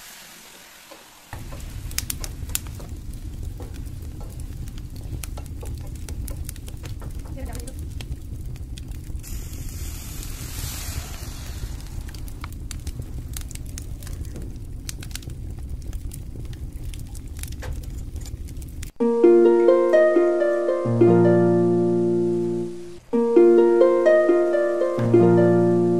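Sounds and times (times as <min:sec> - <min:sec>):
meat sizzling in a frying pan: 0:00.0 - 0:05.4, 0:09.2 - 0:13.5
plucked-string background music: 0:19.0 - 0:25.9.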